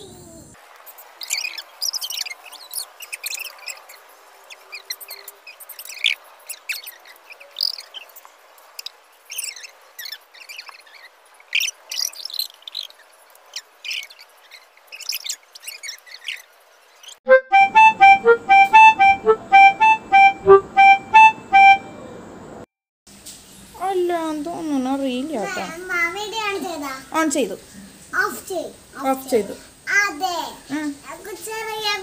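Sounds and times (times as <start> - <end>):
birds chirping: 1.1 - 22.6
harmonica-like music tune: 17.3 - 22.0
faint hiss: 22.0 - 32.0.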